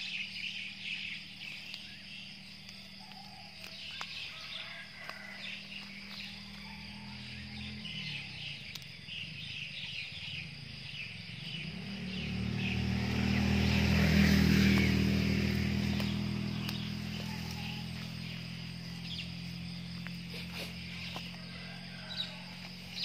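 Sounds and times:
crickets chirping: 0:00.0 - 0:23.0
passing vehicle engine hum: 0:00.0 - 0:23.0.

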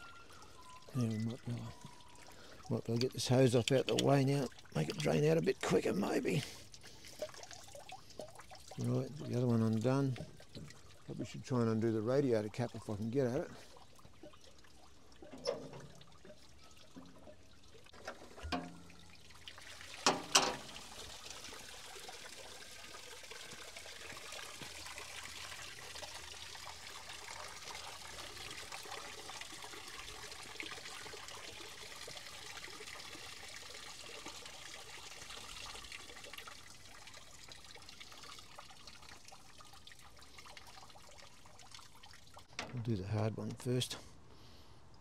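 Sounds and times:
water trickling into container: 0:00.0 - 0:43.8
metallic knocks: 0:18.4 - 0:19.0, 0:20.0 - 0:20.7.

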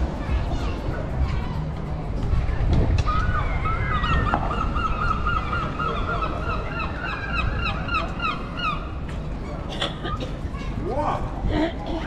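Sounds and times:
low street noise: 0:00.0 - 0:12.0
gull honking calls: 0:03.1 - 0:09.0.

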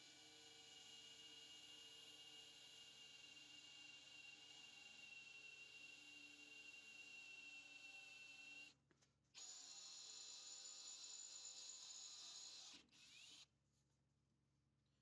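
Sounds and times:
cordless drill whining: 0:09.4 - 0:13.5.

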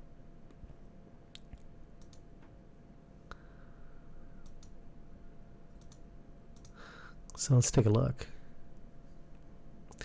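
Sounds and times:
computer mouse clicks: 0:01.4 - 0:02.3, 0:04.4 - 0:04.8, 0:05.8 - 0:06.8.

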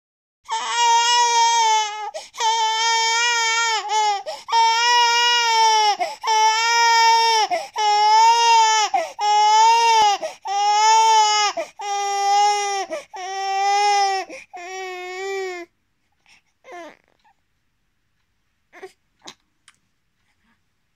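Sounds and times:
baby crying: 0:00.5 - 0:15.7.

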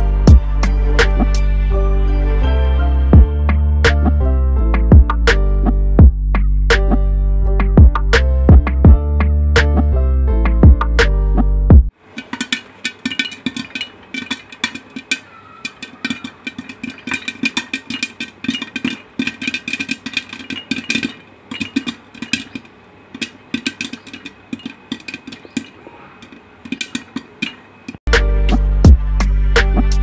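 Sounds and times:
popcorn popping in a pot: 0:11.9 - 0:28.0.

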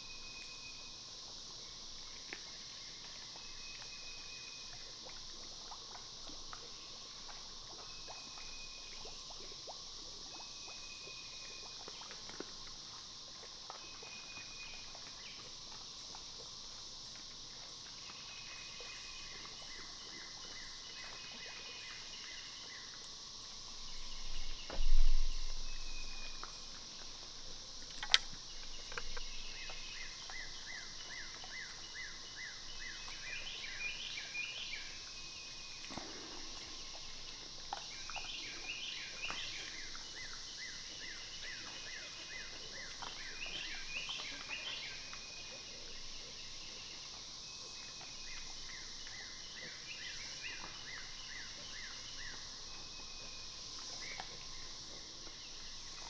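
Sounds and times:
high insect hum: 0:00.0 - 0:56.0
sharp click: 0:27.9 - 0:29.0.

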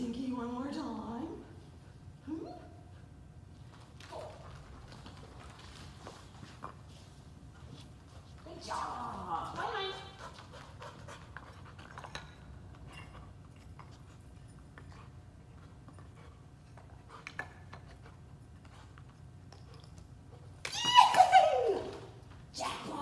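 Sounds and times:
dog panting and sniffing: 0:09.9 - 0:20.6.

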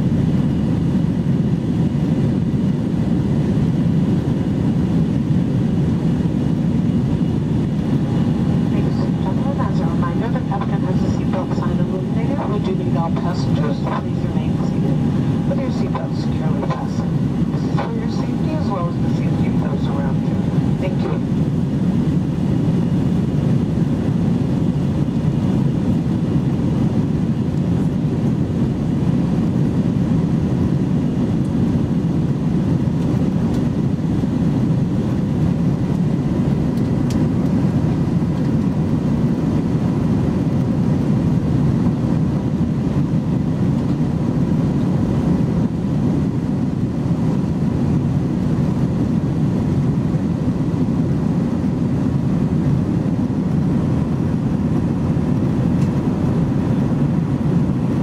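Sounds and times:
jet engines droning: 0:00.0 - 0:58.0
faint steady hum: 0:04.9 - 0:26.9.

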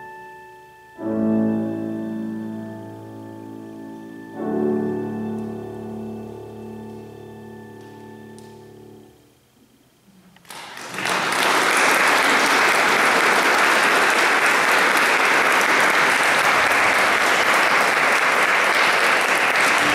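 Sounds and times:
audience applause: 0:10.4 - 0:19.9.

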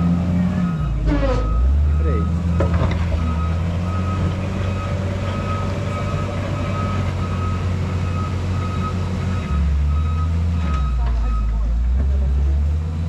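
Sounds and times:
reversing alarm beeping: 0:00.0 - 0:11.8
diesel engine running: 0:00.0 - 0:13.0.

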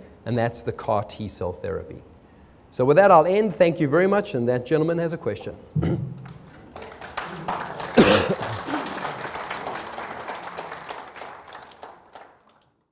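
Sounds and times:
audience applauding: 0:06.2 - 0:12.8.

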